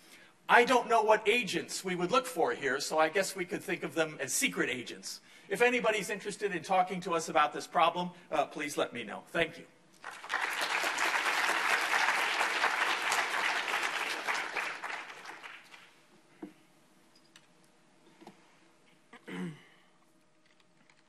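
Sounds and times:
audience applauding: 0:10.0 - 0:16.0.

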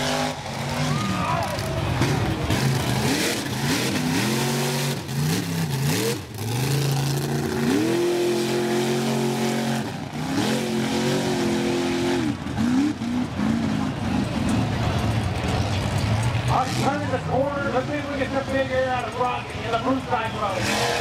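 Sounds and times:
truck engine revving: 0:00.0 - 0:21.0.

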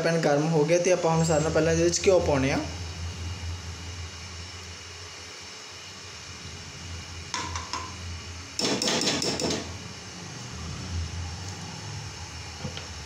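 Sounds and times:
low steady hum: 0:00.0 - 0:08.6.

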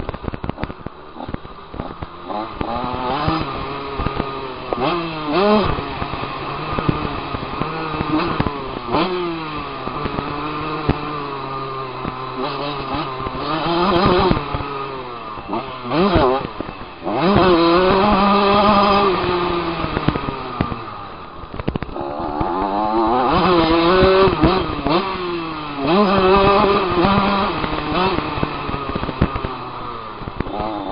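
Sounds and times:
dirt bike engine revving: 0:00.2 - 0:30.9.

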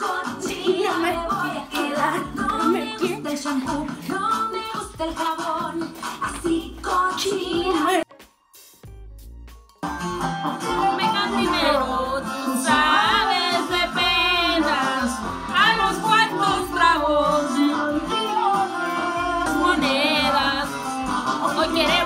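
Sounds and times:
person singing with heavy vibrato: 0:00.0 - 0:06.0, 0:10.8 - 0:22.0
instrumental backing: 0:00.0 - 0:22.0.

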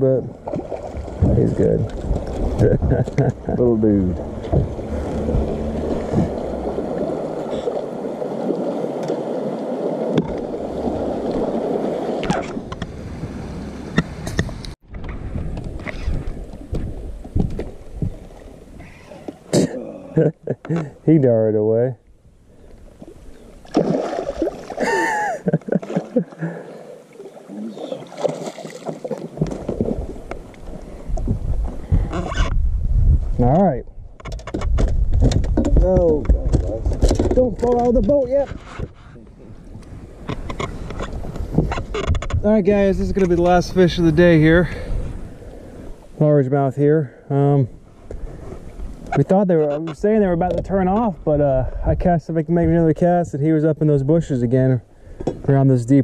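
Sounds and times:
water sloshing: 0:00.3 - 0:14.6, 0:22.6 - 0:32.2
waves lapping against boat hull: 0:00.3 - 0:19.5, 0:22.5 - 0:32.6, 0:34.1 - 0:46.2
fish splashing and thrashing: 0:00.4 - 0:12.9, 0:22.9 - 0:32.2
irregular knocks: 0:04.3 - 0:06.6.

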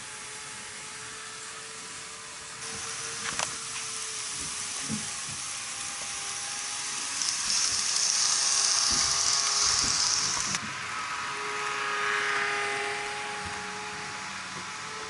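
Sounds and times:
electric motor whine: 0:00.0 - 0:15.0
bright hiss: 0:02.6 - 0:10.6
wheels rushing on rails: 0:02.6 - 0:15.0.

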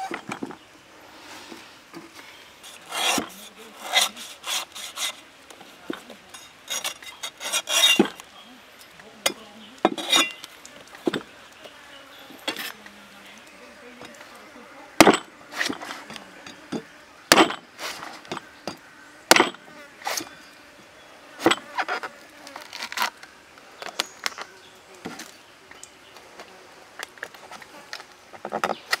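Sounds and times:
cleaver chopping coconut husk: 0:15.0 - 0:16.2, 0:17.3 - 0:17.7, 0:19.3 - 0:19.6.

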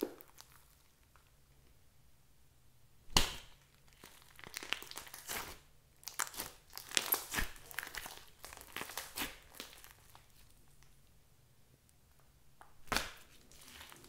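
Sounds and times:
slime squishing: 0:03.2 - 0:11.0, 0:12.9 - 0:14.0.

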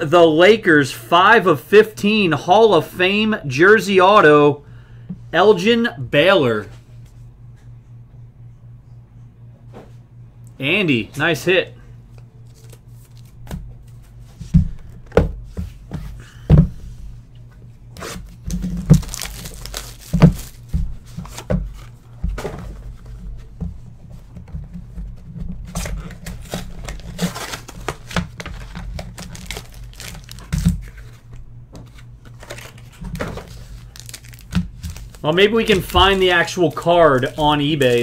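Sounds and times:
foil packs crinkling and tearing: 0:18.3 - 0:21.9, 0:25.7 - 0:31.2, 0:32.3 - 0:38.0.

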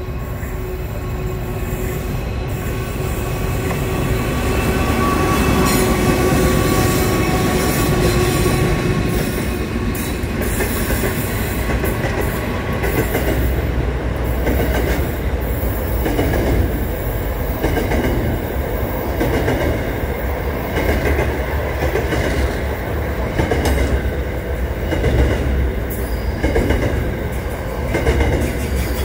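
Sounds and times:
diesel locomotives rumbling: 0:00.0 - 0:29.0.

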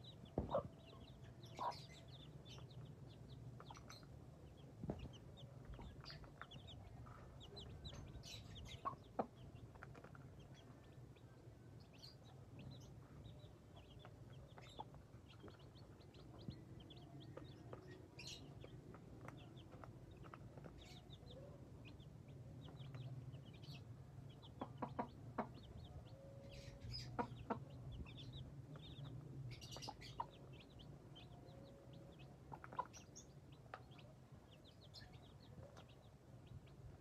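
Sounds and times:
chicks peeping: 0:00.0 - 0:37.0
hen clucking: 0:00.4 - 0:02.7, 0:05.0 - 0:10.4, 0:22.6 - 0:28.9, 0:32.5 - 0:33.3.

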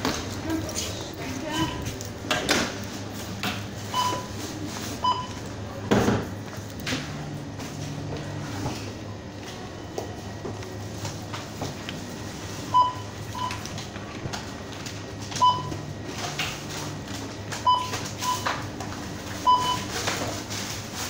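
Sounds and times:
low hum of shop noise: 0:00.0 - 0:21.0
checkout scanner beeping: 0:00.4 - 0:02.1, 0:03.8 - 0:05.6, 0:12.3 - 0:13.9, 0:15.3 - 0:16.4, 0:17.5 - 0:20.0.

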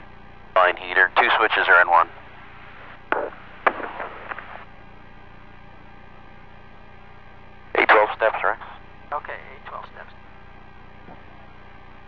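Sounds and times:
faint hum: 0:00.0 - 0:12.0
radio line hiss: 0:00.6 - 0:04.8, 0:07.7 - 0:11.7.

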